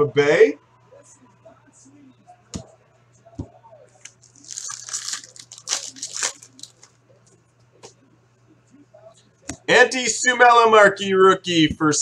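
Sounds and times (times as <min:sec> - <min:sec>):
wrapper crinkling and tearing: 0:04.1 - 0:07.0.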